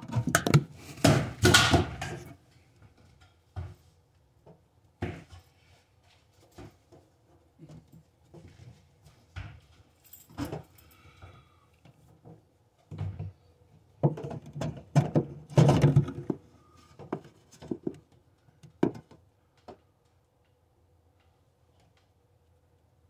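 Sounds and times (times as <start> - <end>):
plumbing parts knocking and rattling: 14.0 - 19.2.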